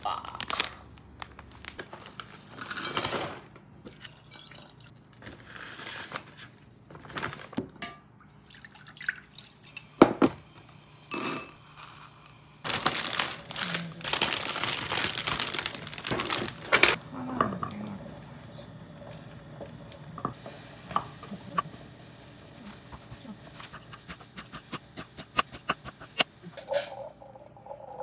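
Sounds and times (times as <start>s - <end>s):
plastic bag crinkling: 0.0s - 2.4s, 12.0s - 17.0s
water pouring into pot: 8.3s - 9.8s.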